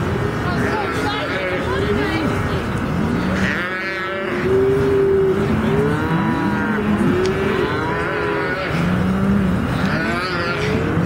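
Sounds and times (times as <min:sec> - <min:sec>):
cattle bawling: 0:03.1 - 0:11.0.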